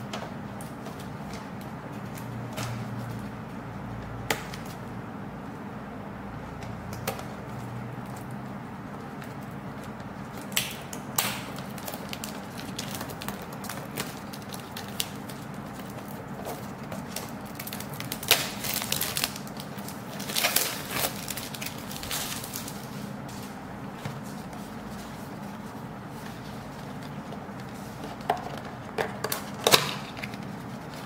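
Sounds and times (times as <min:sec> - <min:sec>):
steady low hum: 0:00.0 - 0:31.0
paper and plastic bags crinkling: 0:07.5 - 0:31.0.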